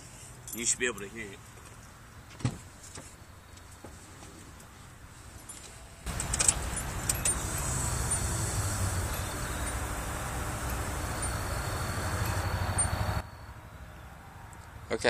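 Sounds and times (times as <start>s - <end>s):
electric fuel pump running: 6.1s - 13.2s.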